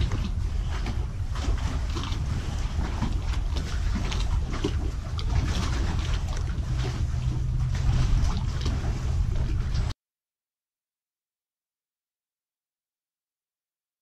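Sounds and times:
water lapping: 0:00.0 - 0:10.0
wind rumbling on microphone: 0:00.0 - 0:10.0.

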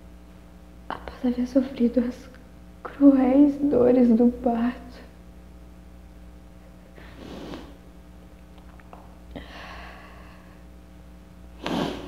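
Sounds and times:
steady low hum: 0:00.0 - 0:12.0
sniff-like breath: 0:07.0 - 0:07.8, 0:11.6 - 0:12.0
woman breathing: 0:09.3 - 0:10.8.

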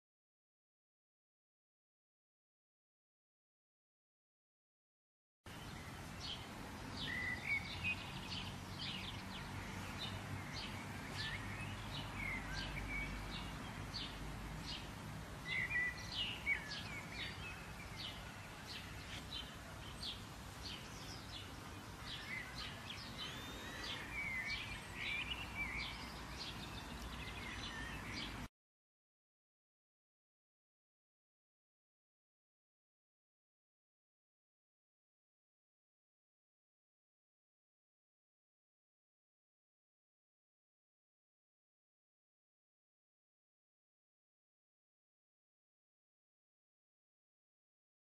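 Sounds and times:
songbirds chirping: 0:05.5 - 0:28.5.

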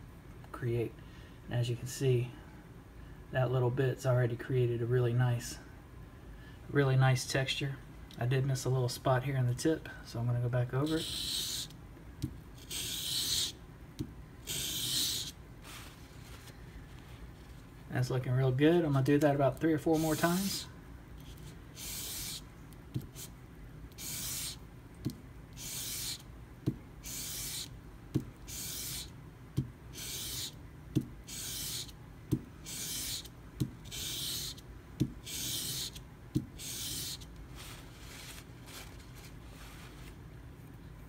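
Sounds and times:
knife scraping on sandpaper: 0:10.8 - 0:11.7, 0:12.6 - 0:13.6, 0:14.4 - 0:16.5, 0:19.9 - 0:20.6, 0:21.2 - 0:22.4, 0:24.0 - 0:24.6, 0:25.6 - 0:26.2, 0:27.0 - 0:27.7, 0:28.5 - 0:29.1, 0:29.9 - 0:30.6, 0:31.3 - 0:31.9, 0:32.6 - 0:34.6, 0:35.2 - 0:36.0, 0:36.6 - 0:40.2.

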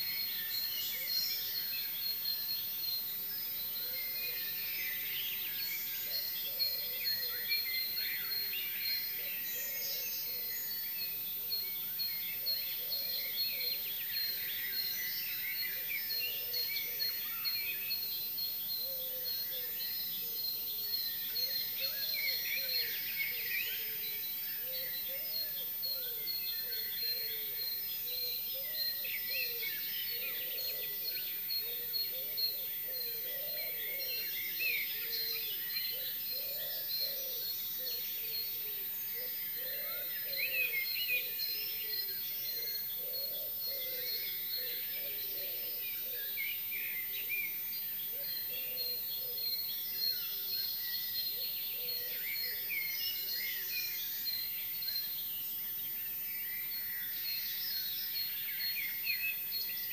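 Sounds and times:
songbirds singing: 0:00.0 - 0:59.9
lower wavering bird calls: 0:12.3 - 0:55.2.

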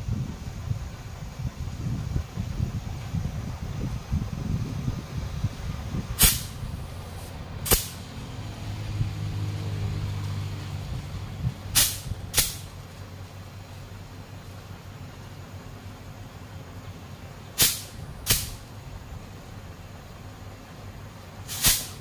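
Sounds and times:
compressed air bursts: 0:00.0 - 0:10.2, 0:10.9 - 0:13.0, 0:17.5 - 0:18.8, 0:21.4 - 0:22.0
low steady hum: 0:00.0 - 0:22.0.

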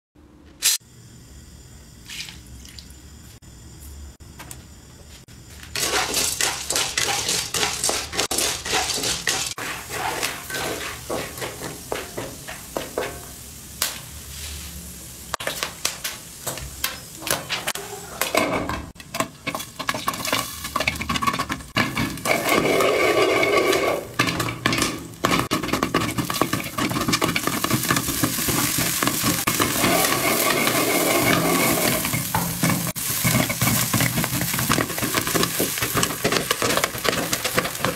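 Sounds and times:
corn kernels sizzling in oil: 0:05.4 - 0:37.9.

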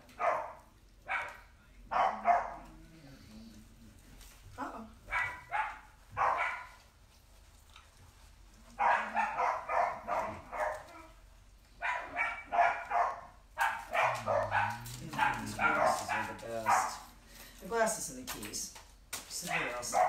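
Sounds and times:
dog barking: 0:00.1 - 0:02.7, 0:05.1 - 0:06.8, 0:08.8 - 0:11.1, 0:11.8 - 0:17.1, 0:19.5 - 0:20.0.

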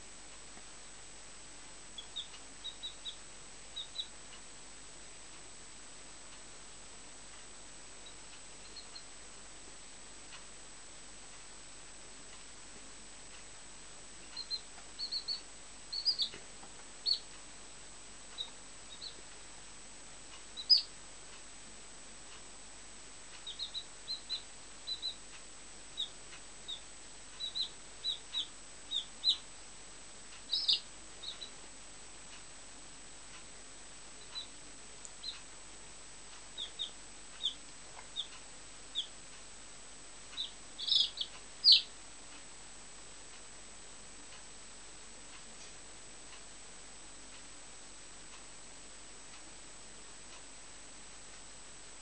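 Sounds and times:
chick peeping: 0:01.9 - 0:04.4, 0:08.0 - 0:09.2, 0:14.2 - 0:17.4, 0:18.3 - 0:19.4, 0:20.3 - 0:21.0, 0:23.3 - 0:25.3, 0:25.9 - 0:29.5, 0:30.3 - 0:31.6, 0:34.2 - 0:35.5, 0:36.3 - 0:39.2, 0:40.3 - 0:42.0.

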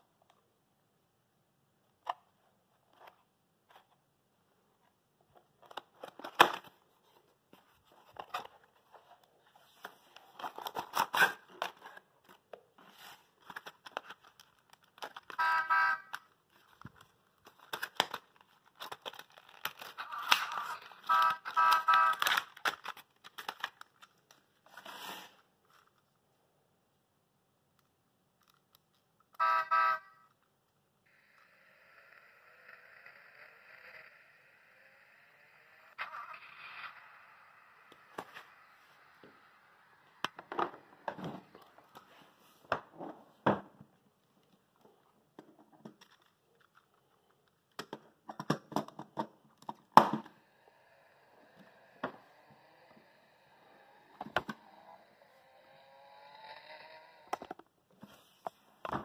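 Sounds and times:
electronic horn beeps: 0:15.3 - 0:16.2, 0:20.1 - 0:22.3, 0:29.4 - 0:30.3
cardboard crinkling and tearing: 0:16.6 - 0:20.8.

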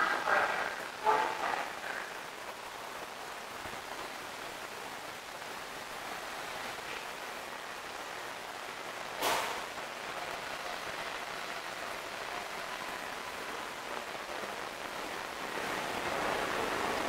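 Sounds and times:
hissing station ambience: 0:00.0 - 0:17.0
sharp clack: 0:09.2 - 0:09.6.

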